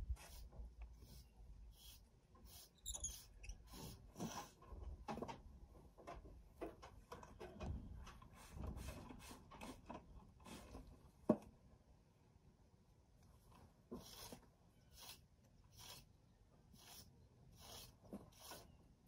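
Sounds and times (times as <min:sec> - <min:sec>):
brush strokes on horse tail: 0:00.1 - 0:04.4, 0:13.9 - 0:16.1, 0:16.8 - 0:18.7
high squeak: 0:02.6 - 0:04.0.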